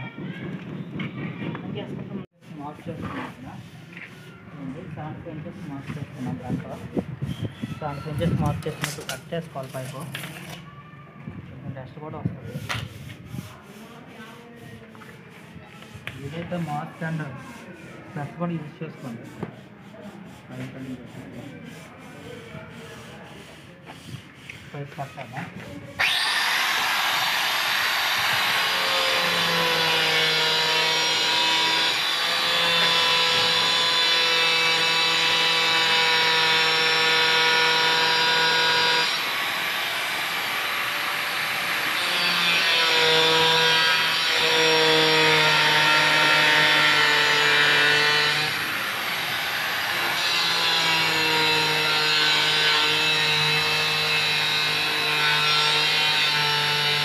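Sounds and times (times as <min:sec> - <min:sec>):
angle grinder cutting pipe: 0:26.0 - 0:57.0.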